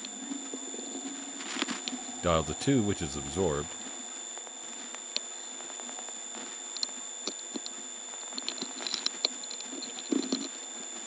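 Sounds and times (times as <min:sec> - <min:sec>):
power-supply hum: 0:00.0 - 0:04.2.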